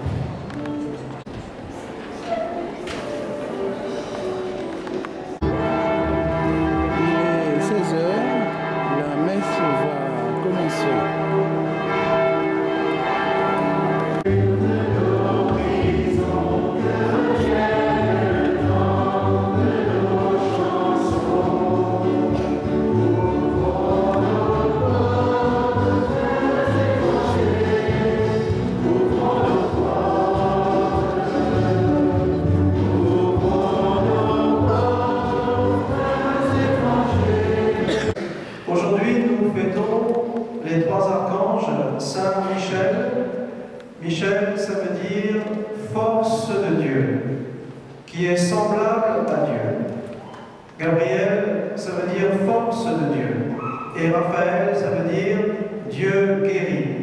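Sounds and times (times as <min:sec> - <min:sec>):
instrumental accompaniment: 0:02.8 - 0:38.2
choir singing a hymn: 0:05.3 - 0:08.9, 0:10.3 - 0:39.4.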